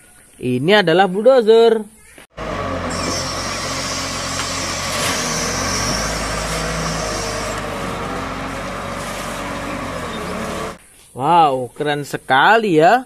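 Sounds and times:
diesel engine under load: 2.3s - 10.8s.

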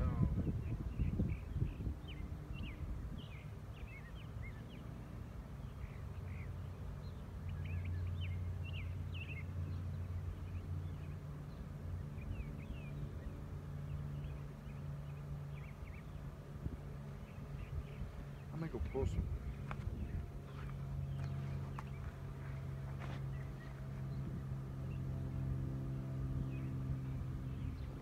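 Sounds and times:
small birds chirping: 0.0s - 28.0s
honey bees buzzing: 3.2s - 28.0s.

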